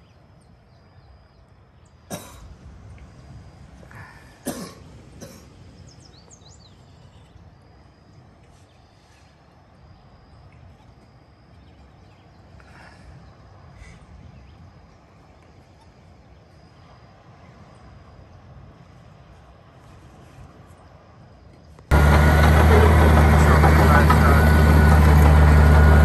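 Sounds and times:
low outdoor background noise: 0:00.0 - 0:26.0
person coughing: 0:02.1 - 0:02.5, 0:04.4 - 0:05.5.

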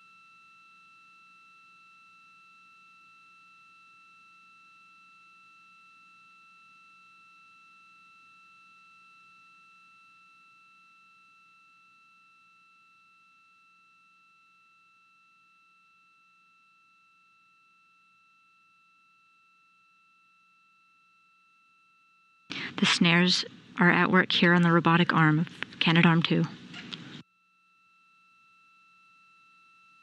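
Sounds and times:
low hum: 0:22.5 - 0:27.2.

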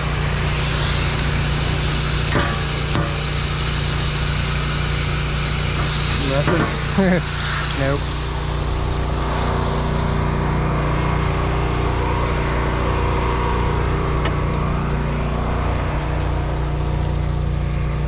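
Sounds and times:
engine droning: 0:00.0 - 0:18.0
hose water spraying hiss: 0:00.0 - 0:18.0.

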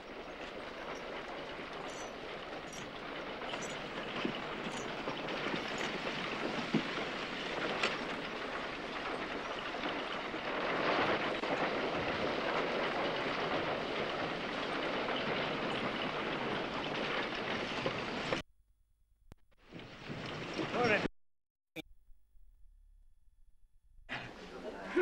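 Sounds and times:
wagon wheels clattering: 0:00.0 - 0:18.4, 0:19.6 - 0:21.1.

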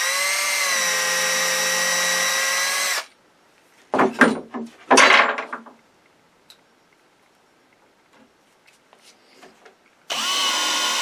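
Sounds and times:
drill boring through wood: 0:00.0 - 0:03.1, 0:10.1 - 0:11.0.

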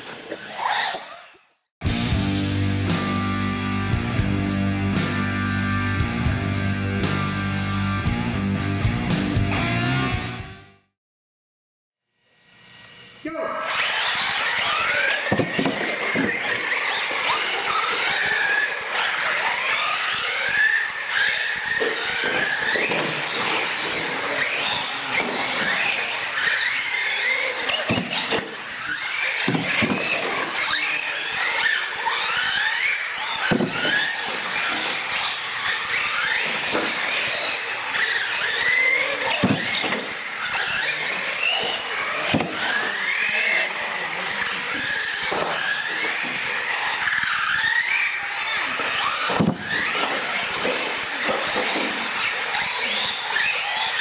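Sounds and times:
electric motors whining: 0:12.2 - 0:54.0
tyre squeals and knocks: 0:13.8 - 0:43.6, 0:44.8 - 0:54.0.

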